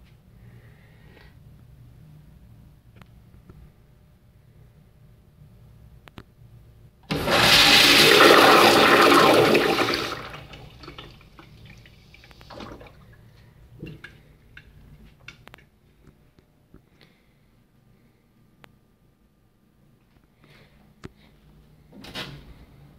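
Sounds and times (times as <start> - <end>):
urinal flushing: 7.1 - 14.3.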